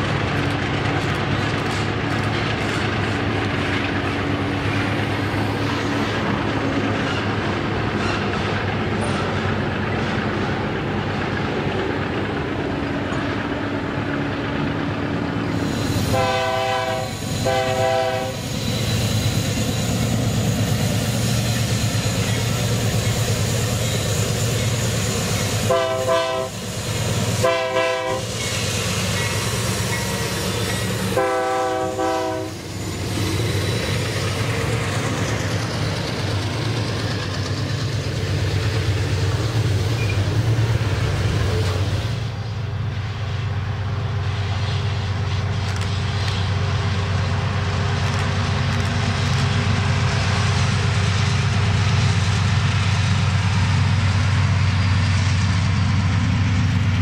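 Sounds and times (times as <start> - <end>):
diesel locomotive engine rumble: 0.0 - 57.0
train air horn blasts: 16.0 - 18.5, 25.6 - 26.6, 27.4 - 28.3, 31.0 - 32.7.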